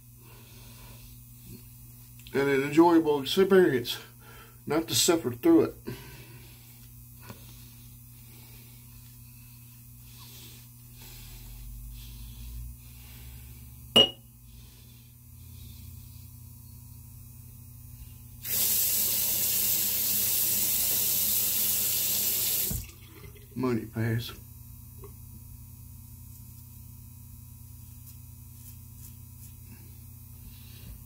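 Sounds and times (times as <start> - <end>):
sink tap running: 18.4 - 23.4.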